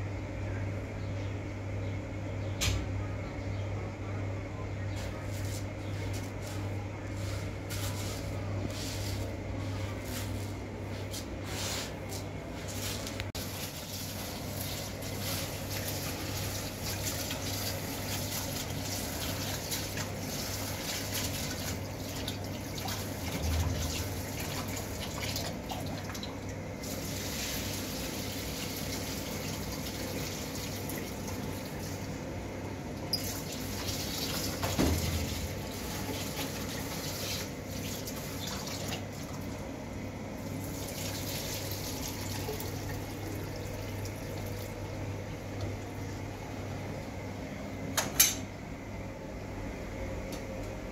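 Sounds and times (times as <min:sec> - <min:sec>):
water splashing and sloshing: 0:10.0 - 0:32.2, 0:33.1 - 0:39.7.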